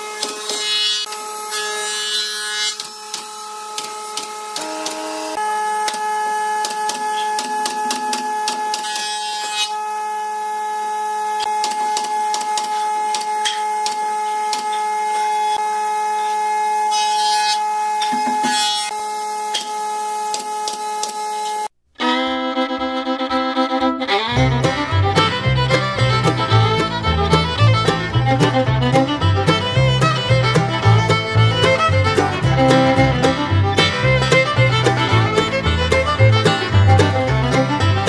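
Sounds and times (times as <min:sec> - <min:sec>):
power tool motor whining: 0:00.0 - 0:21.7.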